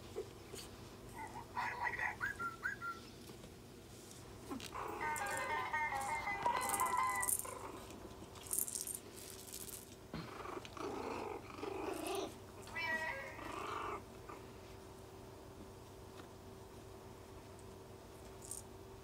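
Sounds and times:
puppies growling: 1.1s - 2.8s, 4.4s - 8.0s, 10.2s - 14.5s.

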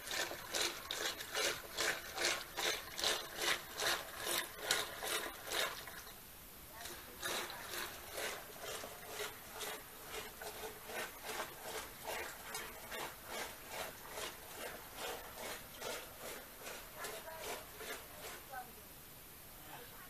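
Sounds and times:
churning stick swishing rub: 6.8s - 18.5s.

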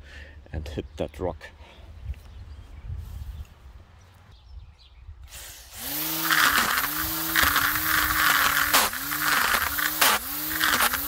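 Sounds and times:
electric motor whirring: 5.6s - 11.0s.

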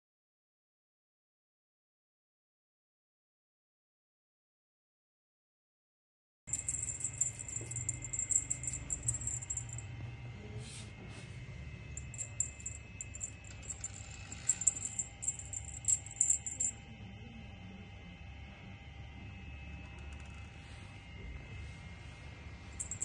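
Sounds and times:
cat toy jingling: 6.5s - 9.8s, 12.0s - 16.7s, 22.8s - 23.0s
faint steady hum: 6.5s - 10.6s, 11.2s - 23.0s.

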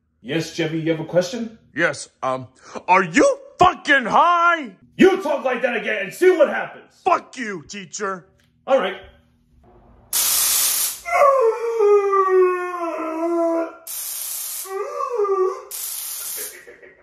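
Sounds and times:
harsh hissing bursts: 10.1s - 11.0s, 13.9s - 14.8s, 15.7s - 16.7s
person wailing: 14.7s - 15.8s.

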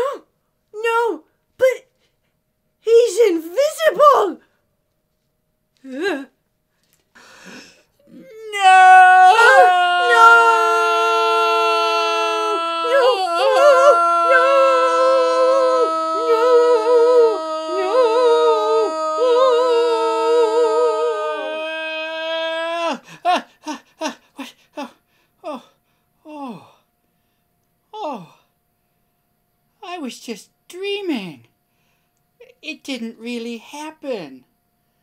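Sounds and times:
people wailing anguished: 8.1s - 23.2s
short falling cries: 8.1s - 23.2s.

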